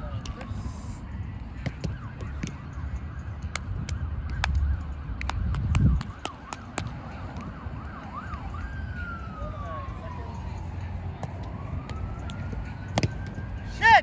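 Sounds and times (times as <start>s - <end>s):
ball being hit with slaps: 1.6s - 2.6s, 5.2s - 7.5s, 11.2s - 13.4s.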